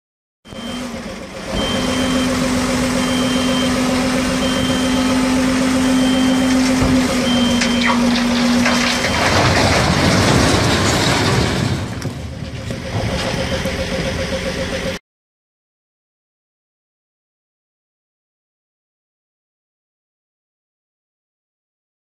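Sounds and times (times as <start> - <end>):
high warning beep: 0.5 - 8.1
truck engine humming: 0.5 - 15.0
stone blocks sliding out grinding: 7.6 - 12.1.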